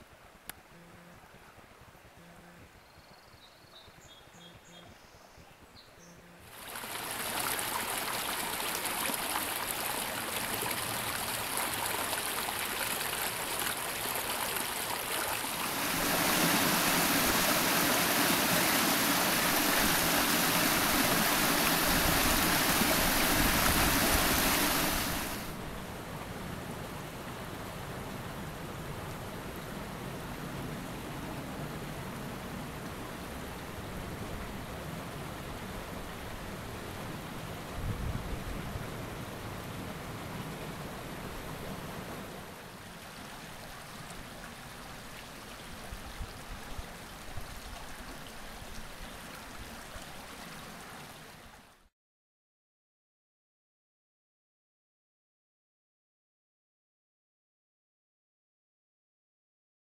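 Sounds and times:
creek water rushing over rocks: 6.5 - 25.8, 39.0 - 51.8.

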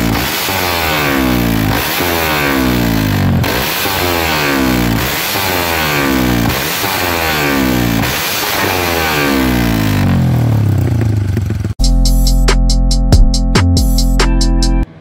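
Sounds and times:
motorcycle engine revving: 0.0 - 11.8
electronic music with drum beat: 11.8 - 14.9.

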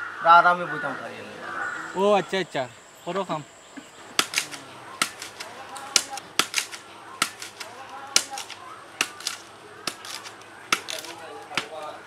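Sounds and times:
knife striking bamboo: 4.2 - 12.0.

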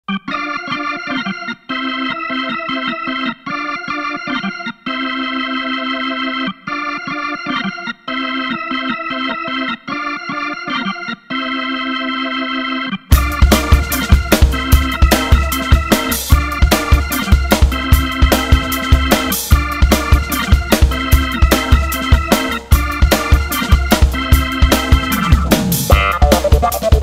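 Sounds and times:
electronic organ chords: 0.0 - 27.0.

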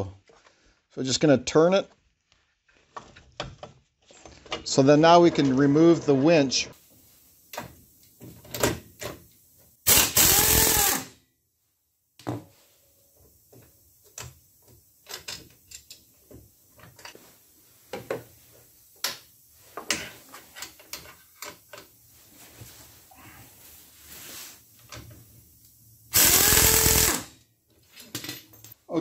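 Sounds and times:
impact wrench whining: 9.8 - 11.2, 26.1 - 27.3.

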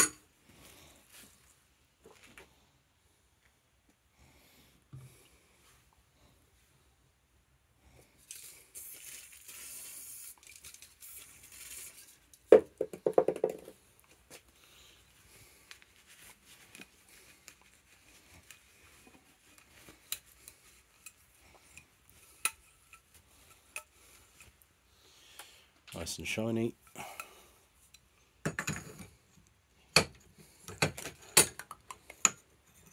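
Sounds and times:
steady hiss: 8.3 - 12.0.

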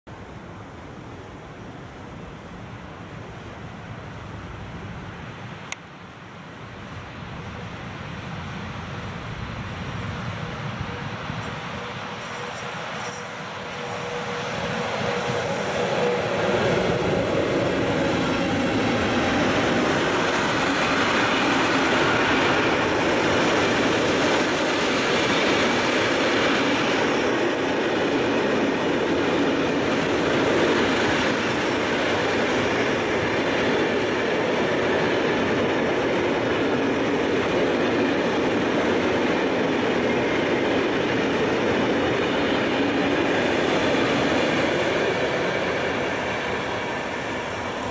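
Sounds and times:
train wheels rumbling on rails: 0.4 - 47.9.

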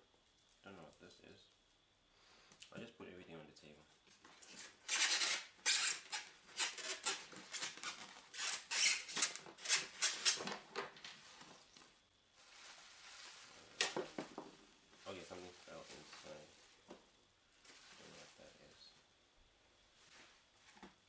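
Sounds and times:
bubble wrap crinkling: 4.5 - 16.9.

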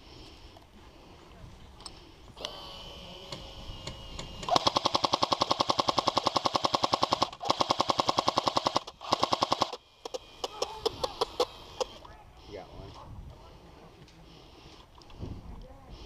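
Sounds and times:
airsoft gun firing bursts: 4.1 - 12.0.

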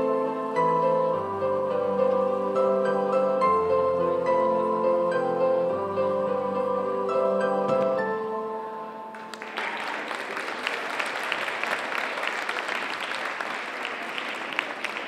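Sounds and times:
audience applauding: 9.1 - 15.0.

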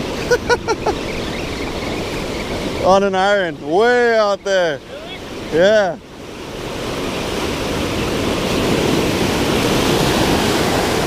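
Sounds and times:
ocean surf rushing: 0.0 - 11.0.

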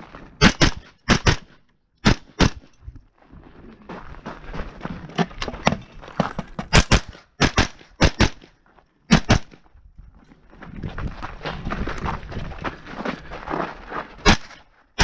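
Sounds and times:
footsteps on gravel: 0.0 - 0.4, 2.9 - 7.0, 8.3 - 14.9
carbine gunshots: 0.4 - 2.7, 6.6 - 8.5, 9.1 - 9.6, 14.2 - 15.0.

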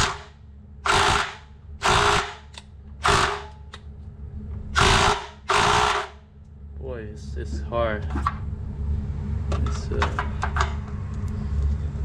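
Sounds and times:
impact wrench hammering: 0.0 - 3.7, 4.8 - 6.2.

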